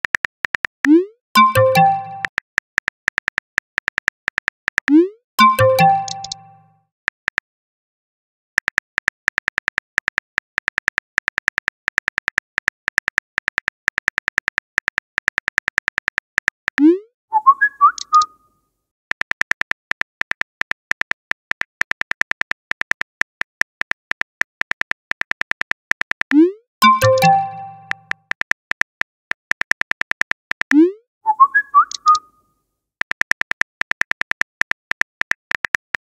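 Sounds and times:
phone keyboard tapping clicks: 0:00.0 - 0:06.5, 0:08.6 - 0:16.9, 0:19.1 - 0:30.8, 0:33.0 - 0:36.0
quick chime notes: 0:26.8 - 0:28.1.

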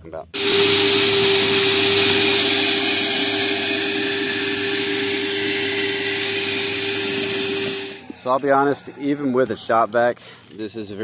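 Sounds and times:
shop vac motor whine: 0:00.4 - 0:08.1.

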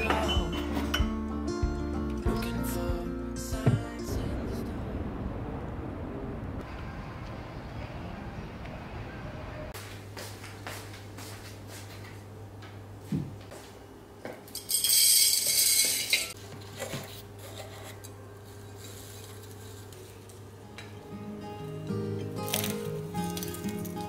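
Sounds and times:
soft music: 0:00.0 - 0:04.7, 0:20.6 - 0:24.0
low hum: 0:01.0 - 0:09.7.

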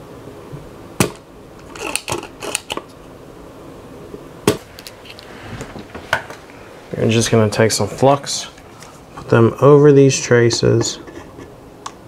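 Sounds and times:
loud snap: 0:01.0 - 0:01.3, 0:04.4 - 0:04.7.

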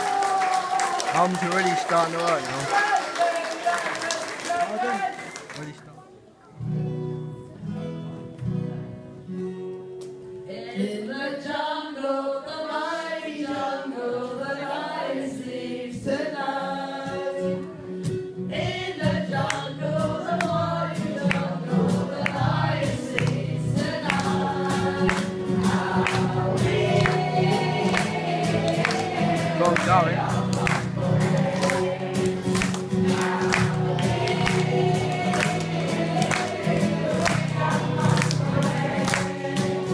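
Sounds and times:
acoustic guitar: 0:05.2 - 0:39.9
group singing: 0:10.5 - 0:17.8, 0:18.5 - 0:39.9
sharp rhythmic beats: 0:22.8 - 0:39.9.

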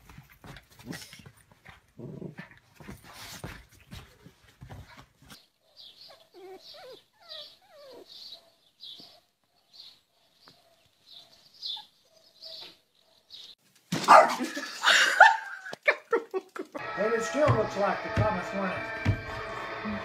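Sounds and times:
animals scuffling: 0:00.0 - 0:05.5
small animal whines and squeaks: 0:06.1 - 0:08.2.

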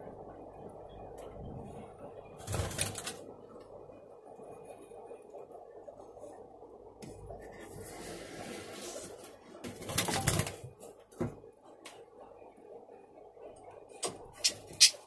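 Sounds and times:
bird wings flapping: 0:02.4 - 0:03.2, 0:09.7 - 0:10.7.

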